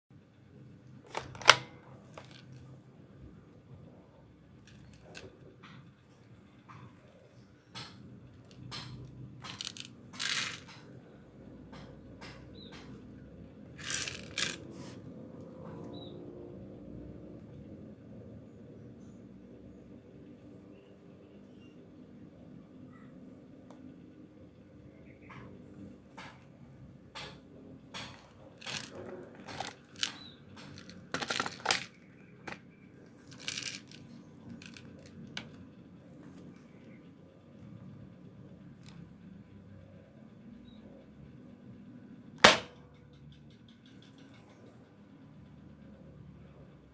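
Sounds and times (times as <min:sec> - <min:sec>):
toy rifle clicks and rattles: 0:01.1 - 0:02.6, 0:08.4 - 0:10.9, 0:13.8 - 0:14.7, 0:28.0 - 0:32.6, 0:33.2 - 0:35.6
magazine seating snap: 0:42.4 - 0:42.8.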